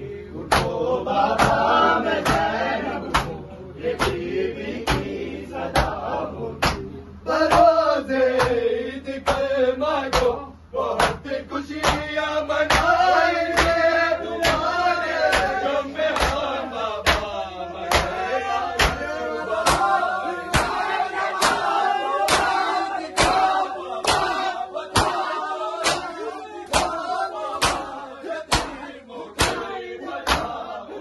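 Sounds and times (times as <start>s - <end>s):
men chanting together: 0.0s - 31.0s
chest-beating slaps: 0.5s - 0.8s, 2.2s - 2.5s, 3.1s - 3.4s, 4.0s - 4.3s, 4.9s - 5.1s, 5.8s - 6.0s, 6.6s - 6.9s, 11.0s - 11.2s, 11.8s - 12.1s, 12.7s - 13.0s, 13.6s - 13.8s, 14.4s - 14.7s, 15.3s - 16.4s, 17.0s - 18.2s, 18.8s - 20.8s, 21.4s - 21.7s, 22.3s - 27.0s, 27.6s - 27.9s, 28.5s - 28.8s, 29.4s - 30.6s.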